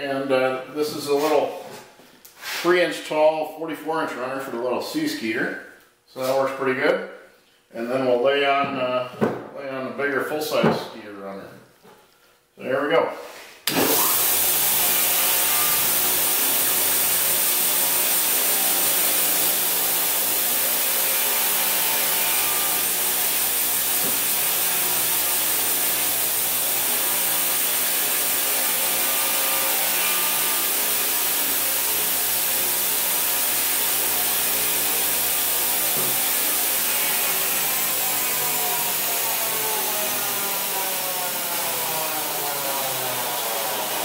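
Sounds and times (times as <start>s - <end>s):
belt grinder motor running: 13.7s - 44.0s
steel grinding on abrasive belt: 13.8s - 39.2s.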